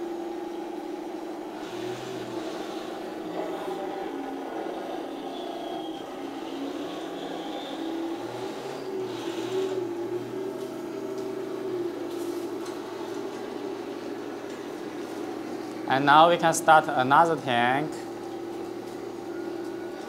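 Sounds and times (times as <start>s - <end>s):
toy tank motor humming: 1.6s - 10.4s.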